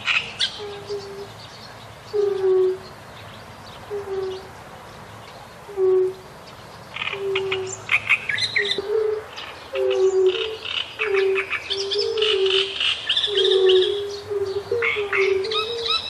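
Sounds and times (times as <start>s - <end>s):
low hooting calls: 2.1s - 2.9s, 3.9s - 4.5s, 5.6s - 6.3s, 7.0s - 16.0s
high chirping bird calls: 5.2s - 16.0s.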